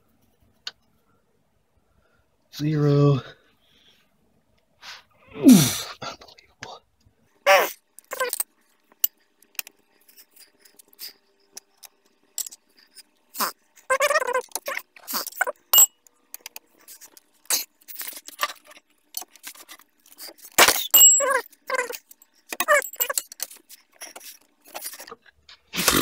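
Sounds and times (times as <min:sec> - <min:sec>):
squeaky creaks: 0:07.5 - 0:08.4, 0:12.8 - 0:15.9, 0:19.4 - 0:25.2
hand tools clinking on metal: 0:20.6 - 0:23.6.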